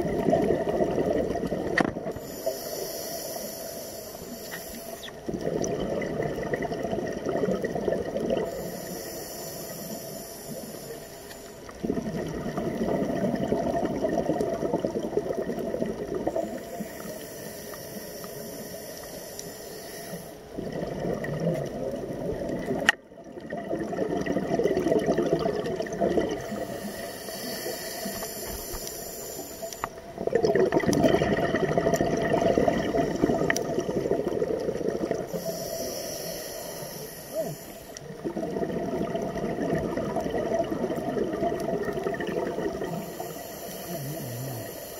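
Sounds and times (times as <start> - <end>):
exhaled bubbles rushing: 0.0 - 2.3, 5.0 - 8.6, 11.8 - 16.7, 20.6 - 26.8, 30.0 - 35.5, 37.4 - 43.2
scuba regulator hissing inhale: 2.1 - 5.3, 8.4 - 11.8, 16.2 - 20.6, 26.3 - 30.0, 35.2 - 38.1, 42.5 - 44.9.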